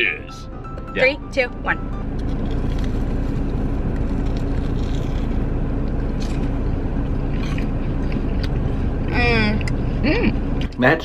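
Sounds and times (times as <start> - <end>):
car engine idling: 0.0 - 11.0
crunchy food bites: 3.9 - 6.6, 7.4 - 8.6.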